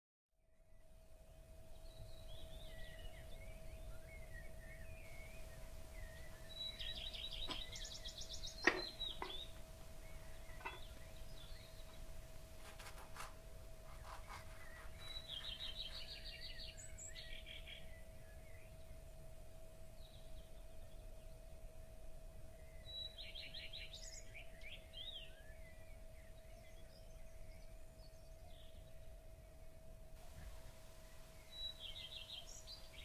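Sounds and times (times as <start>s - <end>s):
faint steady hum: 0.4s - 33.0s
birds chirping: 1.8s - 13.2s, 13.8s - 19.0s, 30.2s - 33.0s
trilled bird calls: 1.9s - 12.1s, 13.9s - 18.0s.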